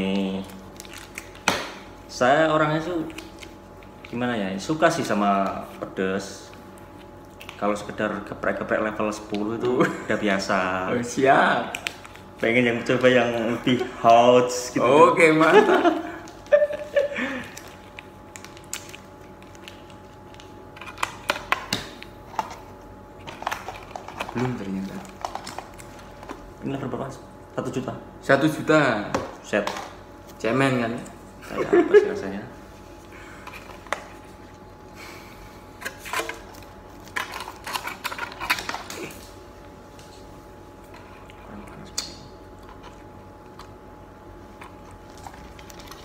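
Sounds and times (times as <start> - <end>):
plastic sachet crinkling: 0.0 - 5.2, 16.2 - 21.2, 44.6 - 46.0
steady low hum: 0.0 - 46.0.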